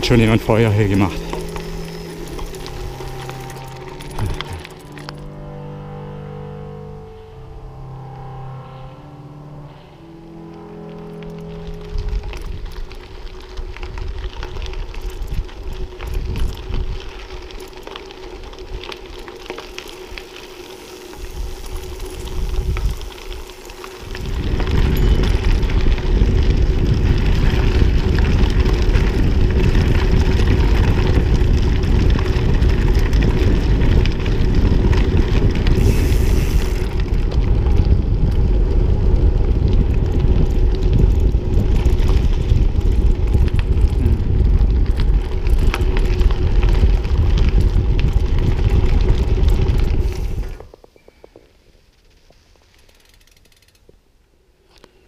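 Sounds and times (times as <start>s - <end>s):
wind buffeting microphone: 11.9s - 17.6s, 21.2s - 23.4s, 24.0s - 50.6s.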